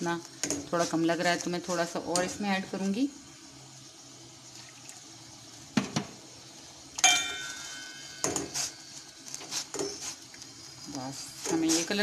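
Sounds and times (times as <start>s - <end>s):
faint steady hiss: 0.0s - 12.0s
steel ladle knocking on pot: 7.0s - 8.6s.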